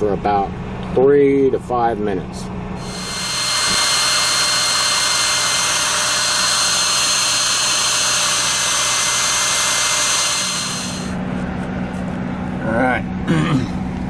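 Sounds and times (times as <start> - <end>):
low steady hum: 0.0 - 14.0
hair dryer whining: 2.8 - 11.2.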